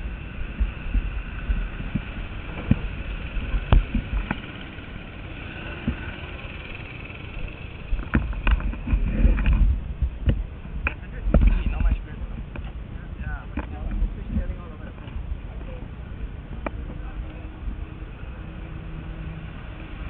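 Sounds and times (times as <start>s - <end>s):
faint kart engine drone: 0.0s - 20.0s
camera handling rumble: 8.0s - 12.8s.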